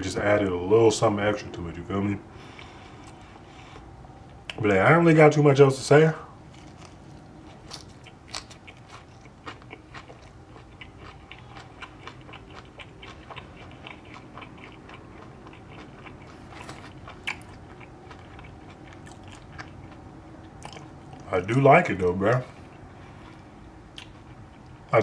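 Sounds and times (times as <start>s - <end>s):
crunchy chewing: 6.4s - 21.4s, 22.1s - 25.0s.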